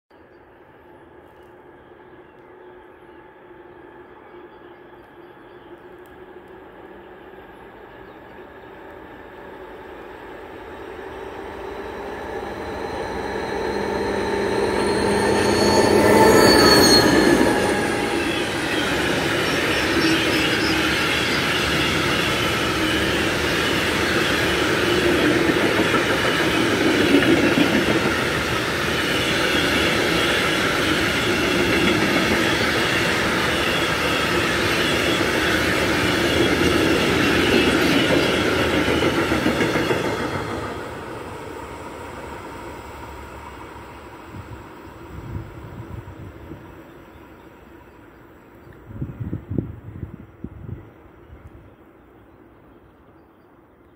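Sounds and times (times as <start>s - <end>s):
freight train rumble: 0.2s - 53.8s
diesel locomotive passing: 0.2s - 53.9s
wheels squealing: 11.0s - 40.8s.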